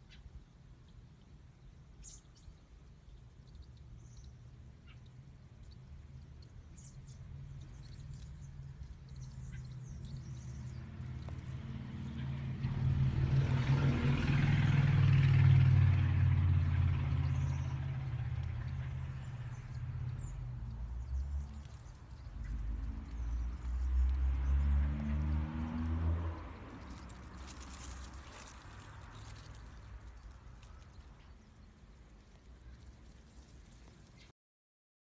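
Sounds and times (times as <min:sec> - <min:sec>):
faint bird chirps: 0:00.0 - 0:11.4
vehicle driving past: 0:06.8 - 0:34.2.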